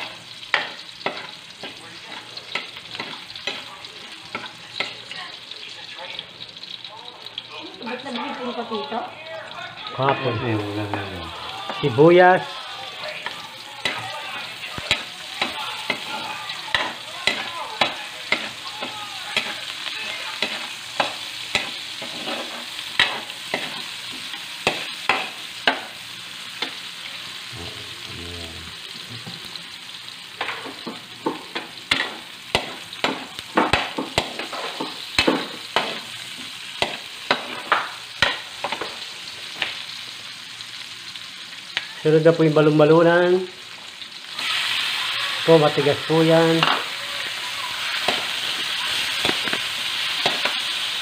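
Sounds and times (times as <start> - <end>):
garlic and onion sizzling in oil: 0.0 - 51.0
metal ladle scraping a wok: 20.4 - 23.8.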